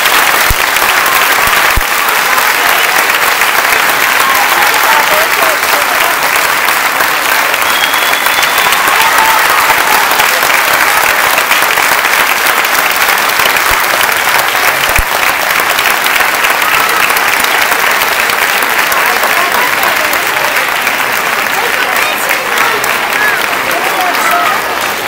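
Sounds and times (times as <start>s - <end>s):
audience applauding: 0.0s - 25.0s.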